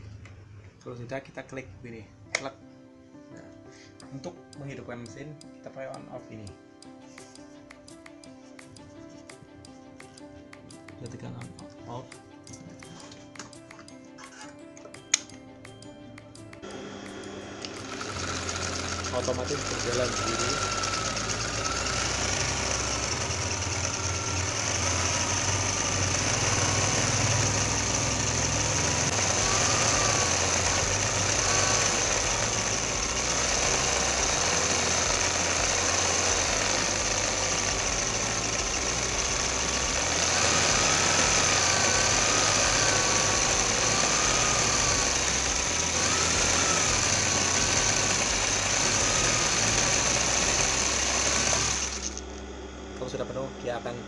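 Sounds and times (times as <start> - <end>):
sewing machine whining: 16.6 - 52.4
bobbin winder wavering whine: 16.6 - 53.8.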